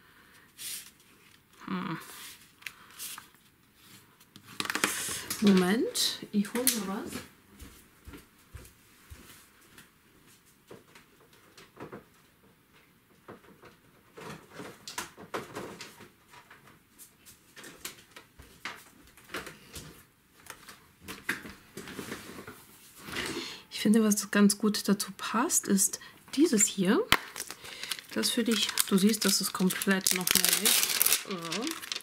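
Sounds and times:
knocks and rustles of rummaging: 27.1s - 32.0s.

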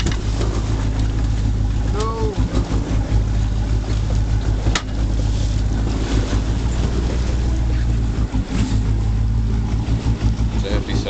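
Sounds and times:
boat engine humming: 0.0s - 11.0s
water noise: 0.0s - 11.0s.

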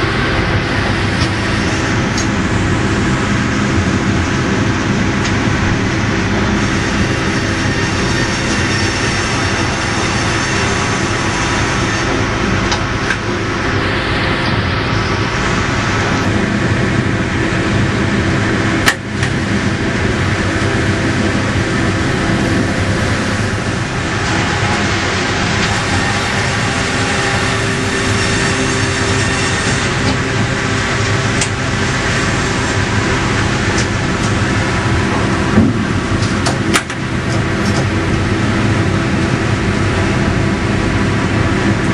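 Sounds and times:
sawmill machinery running: 0.0s - 41.9s.

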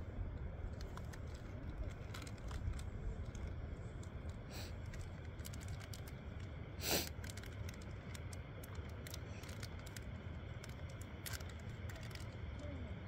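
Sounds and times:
wind rumbling on microphone: 0.0s - 13.0s
paper packets crinkling: 0.8s - 6.5s, 7.1s - 12.6s
short hissing burst: 6.8s - 7.1s.

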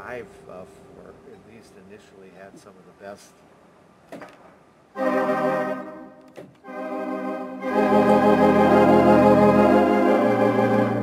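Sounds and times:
pipe organ held chord: 0.0s - 2.3s, 5.0s - 11.0s
deep organ pedal bass notes: 5.0s - 11.0s.

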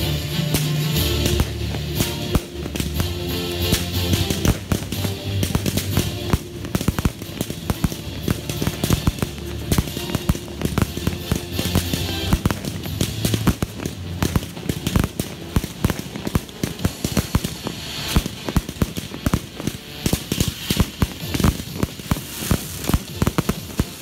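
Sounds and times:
fireworks bangs and crackles: 0.0s - 24.0s.

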